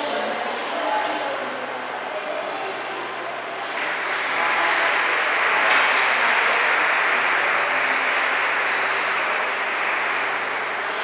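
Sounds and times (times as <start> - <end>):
dense even rushing noise: 3.3 - 11.0.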